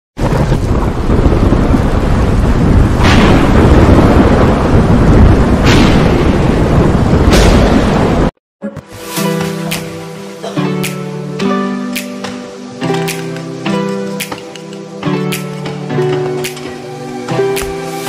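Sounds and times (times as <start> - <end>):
rain hiss: 0.2 - 5.7, 9.2 - 18.0
sharp thunder cracks: 0.2 - 8.3
thunder rumble: 0.2 - 8.4
guitar music: 8.6 - 17.8.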